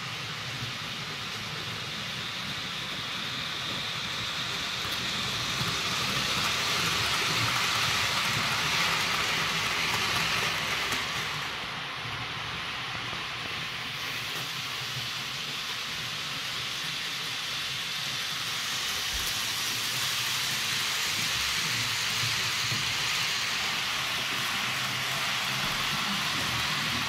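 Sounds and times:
model train wheels on rails: 0.0s - 27.0s.

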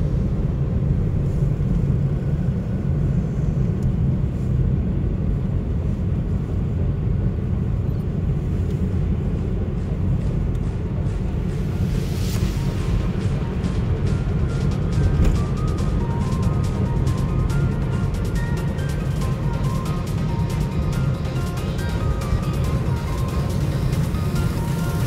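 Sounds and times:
car interior road and engine noise: 0.0s - 25.0s.

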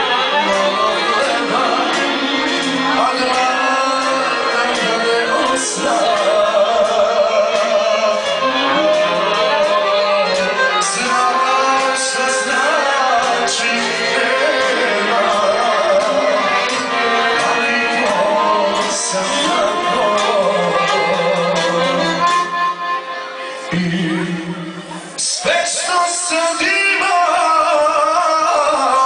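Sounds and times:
man singing into microphone: 0.0s - 22.9s, 23.6s - 29.0s
violin playing: 0.0s - 27.7s.

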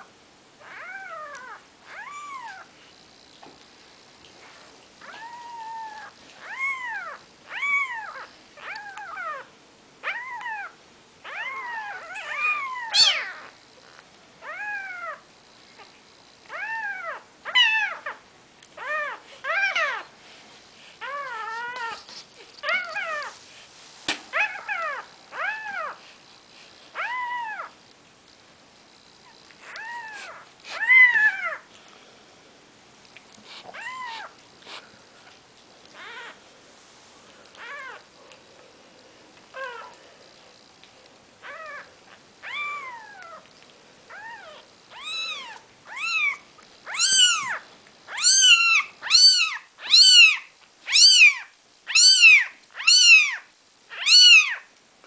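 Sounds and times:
kittens mewing: 10.0s - 13.6s, 44.1s - 54.6s.

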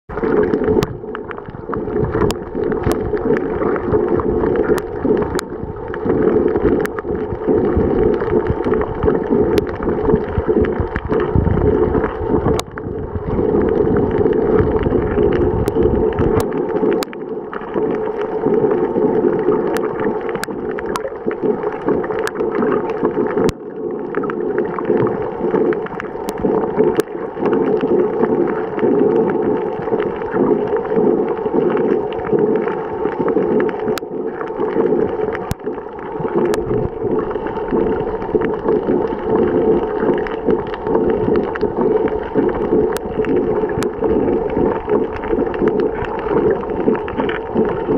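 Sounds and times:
heavy low rumble: 0.1s - 17.0s, 35.0s - 47.9s
sharp underwater clicks: 0.1s - 47.9s
underwater rushing water hiss: 0.2s - 47.9s.

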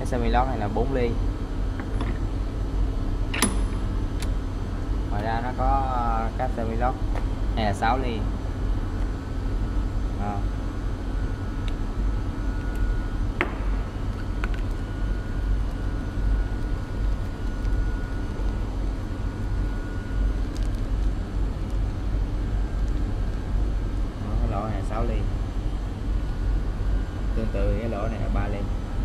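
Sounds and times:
workshop background rumble: 0.0s - 29.0s
sharp click: 3.3s - 4.4s.

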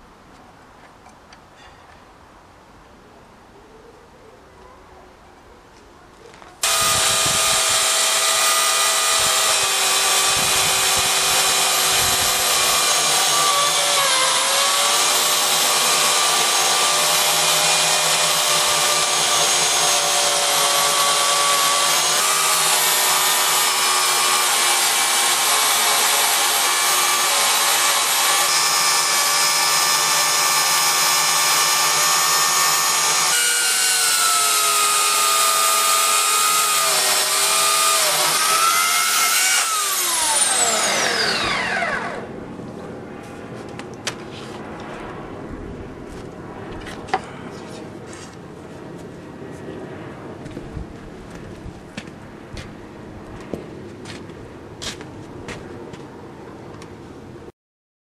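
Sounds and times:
chain cutting through log: 6.6s - 42.3s
electric chainsaw motor whine: 6.6s - 42.4s.

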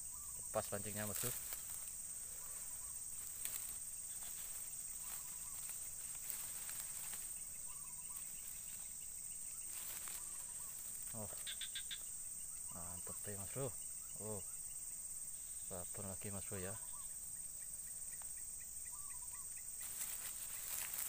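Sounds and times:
insects buzzing: 0.0s - 21.0s
rustling and clicks of handling: 1.0s - 7.4s.

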